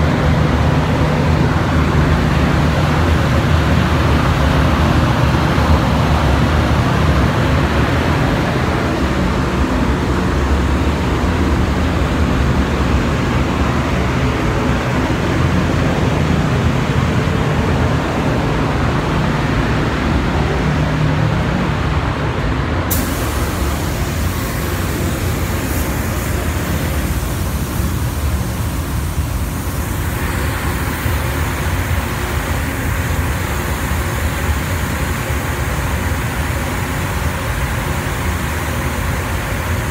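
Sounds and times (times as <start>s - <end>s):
air equipment low rumble: 0.0s - 39.9s
spray gun compressed air hiss: 22.9s - 39.9s.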